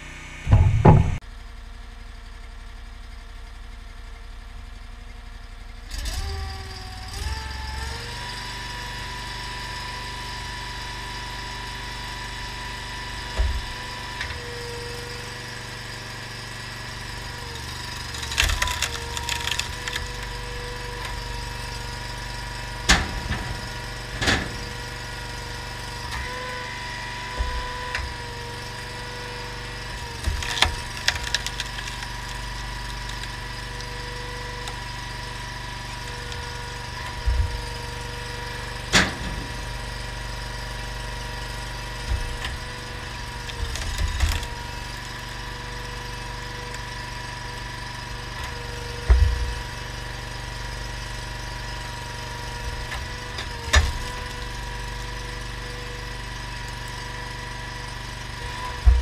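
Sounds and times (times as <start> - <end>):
engine running steadily: 0.0 - 59.0
loud knock: 0.5 - 1.2
wood splitting cracks: 13.2 - 59.0.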